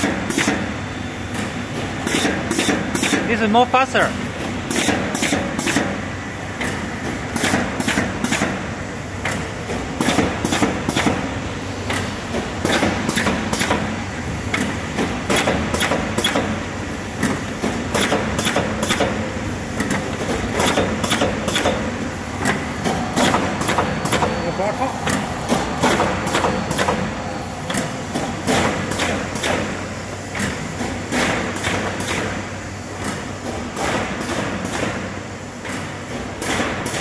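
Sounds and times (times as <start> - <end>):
machine humming: 8.6 - 31.7
sharp mechanical clacks: 14.5 - 16.6, 17.2 - 19.2, 19.8 - 24.3.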